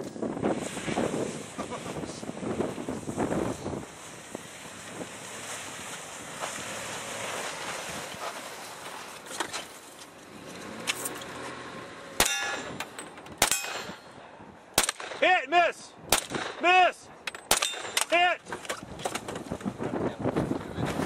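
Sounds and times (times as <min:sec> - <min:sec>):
wind on microphone: 0:00.0 - 0:06.4, 0:18.5 - 0:21.0
pistol shots: 0:12.2 - 0:12.8, 0:13.4 - 0:14.0, 0:14.8 - 0:15.3, 0:16.1 - 0:16.7, 0:17.4 - 0:18.2
steel target plate ringing: 0:12.2 - 0:14.2, 0:17.4 - 0:18.2.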